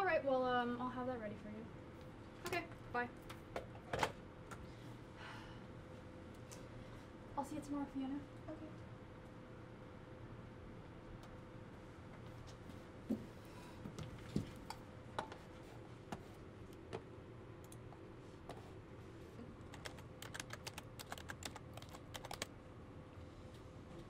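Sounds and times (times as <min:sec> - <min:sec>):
low room hum: 0:00.0 - 0:24.0
keyboard typing clicks: 0:19.7 - 0:22.5.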